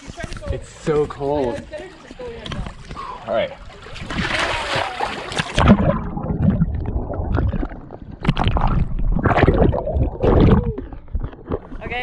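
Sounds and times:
water splashing and churning: 0.0s - 12.0s
muffled underwater rumble and gurgling: 5.5s - 12.0s.

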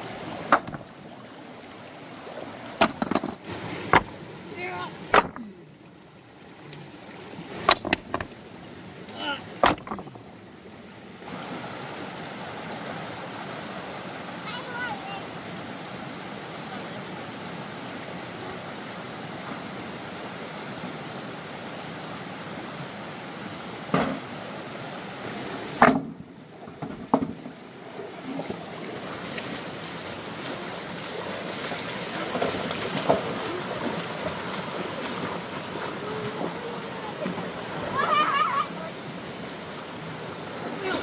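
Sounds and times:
rushing water: 0.0s - 41.0s
sharp knocks: 0.5s - 0.8s, 2.8s - 4.1s, 5.1s - 5.5s, 7.6s - 8.3s, 9.6s - 10.2s, 25.8s - 26.2s.

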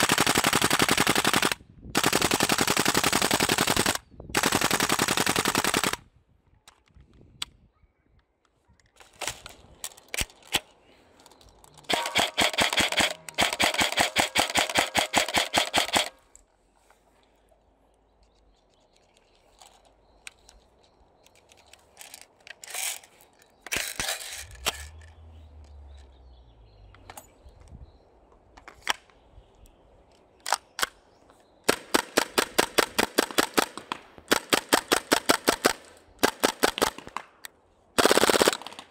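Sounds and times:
airsoft rifles firing: 0.0s - 6.0s, 11.9s - 16.3s, 31.6s - 37.4s, 38.0s - 38.9s.

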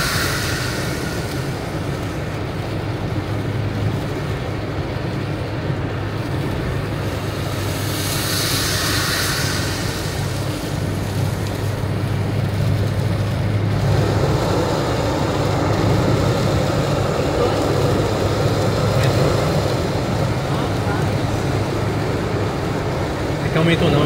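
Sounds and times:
road and engine noise: 0.0s - 24.0s
tyres hissing on wet road: 0.0s - 24.0s.

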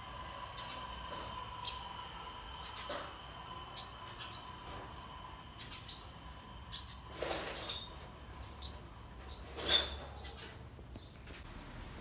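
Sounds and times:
small bird chirping: 3.8s - 4.6s, 6.7s - 8.0s, 8.6s - 11.2s.

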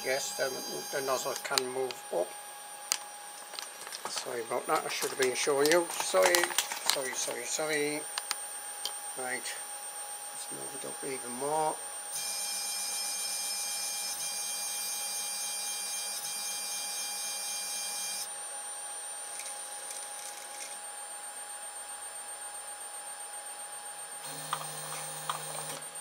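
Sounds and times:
faint stepper motor whistle: 12.1s - 18.3s.

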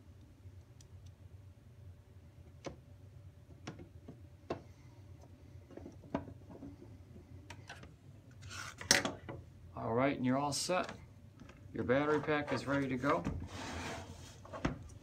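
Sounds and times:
scraping rustle: 11.9s - 14.7s.

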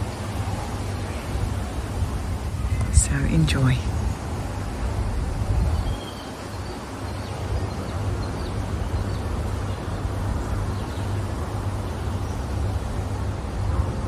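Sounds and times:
wind rumble on microphone: 0.0s - 14.0s
faint bird chirps: 5.8s - 9.2s.

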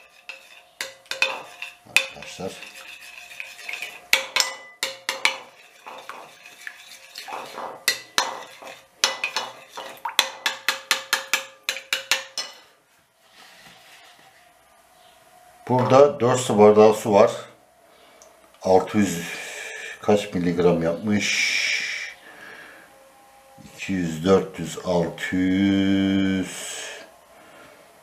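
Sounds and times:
metal teaspoon clinking on glass bowl: 0.2s - 2.9s.

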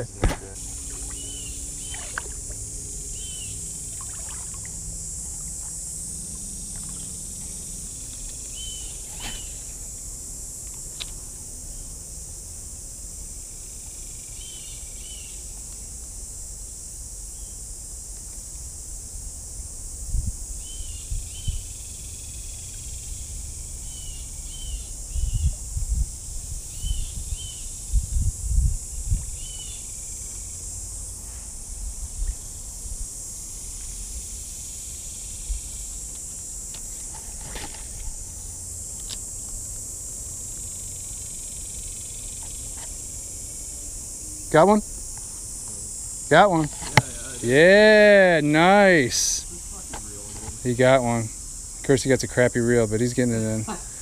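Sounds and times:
insects droning: 0.0s - 54.0s
water sloshing: 0.6s - 2.6s, 3.8s - 5.8s.

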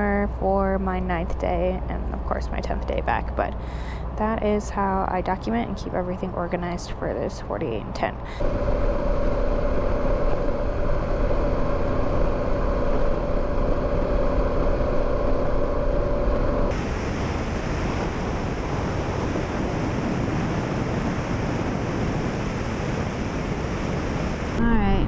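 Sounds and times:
wind buffeting the microphone: 8.2s - 25.0s
motorcycle engine running: 8.4s - 16.7s.

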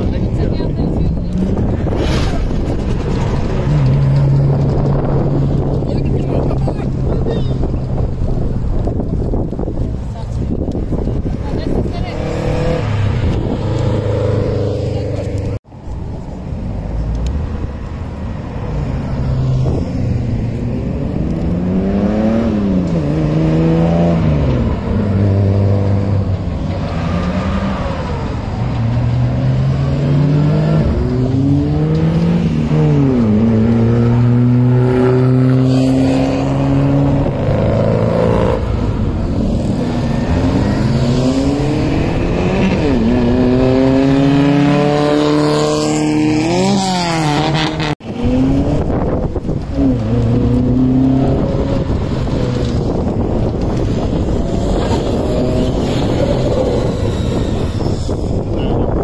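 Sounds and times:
car engines accelerating hard: 0.0s - 59.0s
cars passing by: 0.0s - 59.0s.

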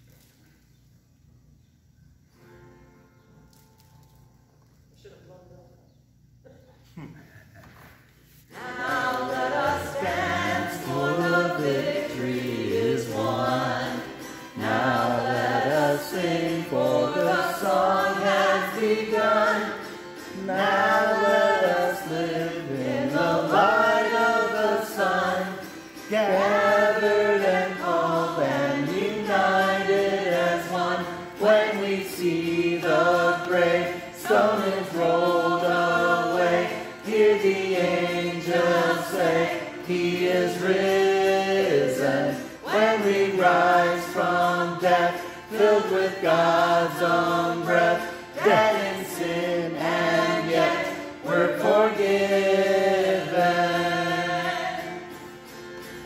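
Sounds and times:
person singing a hymn: 8.5s - 55.6s.

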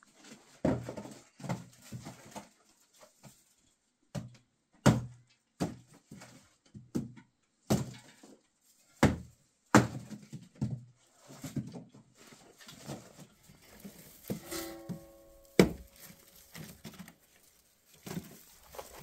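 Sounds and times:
hand tool chopping brushwood: 13.7s - 17.2s.

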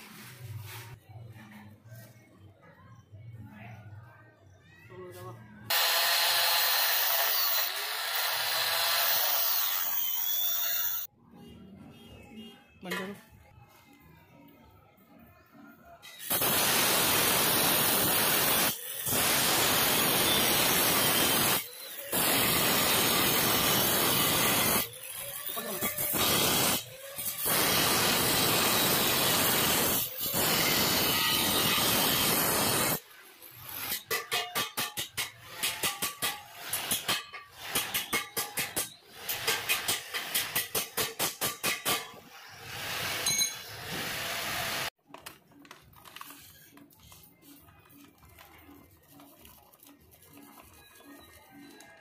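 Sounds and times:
angle grinder boring into concrete: 5.7s - 11.1s, 16.2s - 33.0s.

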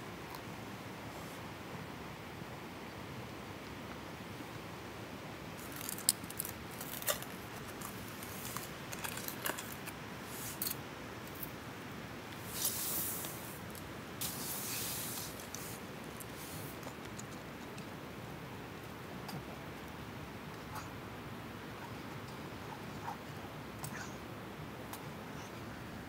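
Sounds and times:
gear rustling: 5.6s - 11.5s.

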